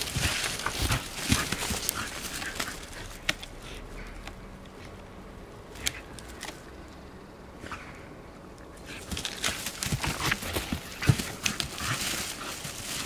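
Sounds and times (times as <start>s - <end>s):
dog rustling forest litter: 0.0s - 3.8s, 8.8s - 13.0s
sharp clicks and scratches: 0.0s - 5.0s, 9.0s - 13.0s.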